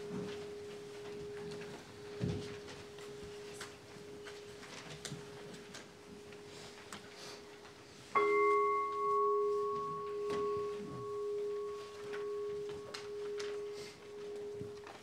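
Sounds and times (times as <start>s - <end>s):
bowl bell ringing: 8.2s - 15.0s.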